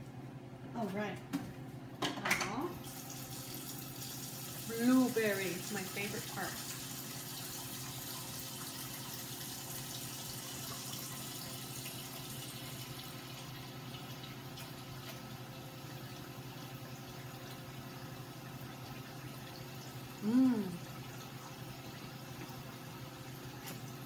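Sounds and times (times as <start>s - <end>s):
batter sizzling in frying pan: 2.8s - 17.2s.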